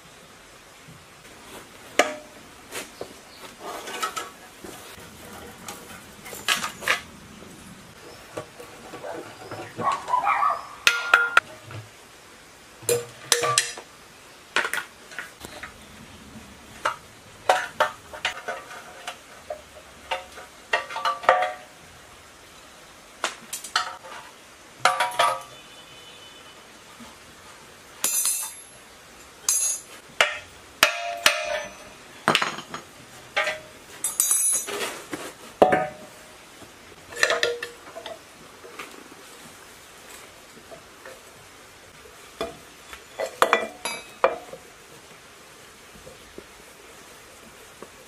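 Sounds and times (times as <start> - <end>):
tools clinking on metal engine: 28.0 - 28.8, 29.5 - 34.8, 43.2 - 44.5.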